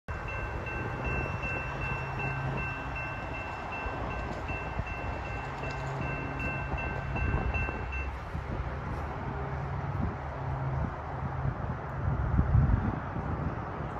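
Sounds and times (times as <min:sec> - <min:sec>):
crossing warning bell ringing: 0:00.1 - 0:08.3
wind noise on microphone: 0:00.1 - 0:13.9.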